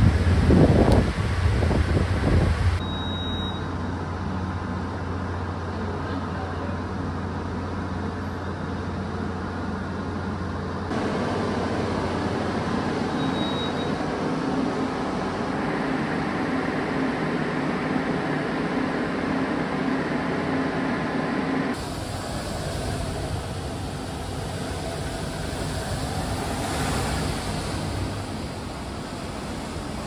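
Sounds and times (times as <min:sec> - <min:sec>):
storm wind and rain: 0:00.0 - 0:02.8, 0:21.7 - 0:30.0
wind gusting on microphone: 0:00.0 - 0:02.8.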